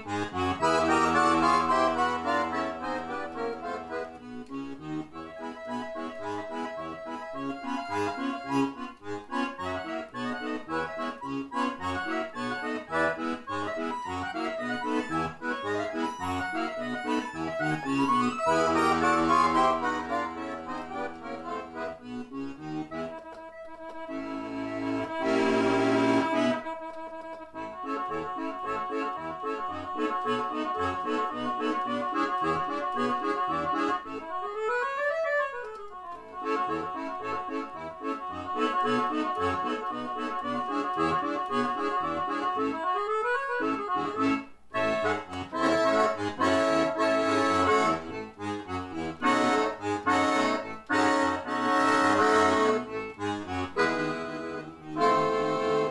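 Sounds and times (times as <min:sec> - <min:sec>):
accordion playing ragtime shuffle: 0:00.0 - 0:55.9.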